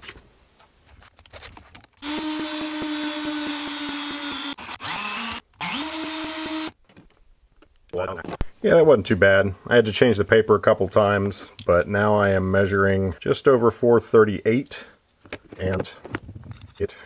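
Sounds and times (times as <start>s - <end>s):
cordless drill running: 2.0s - 6.8s.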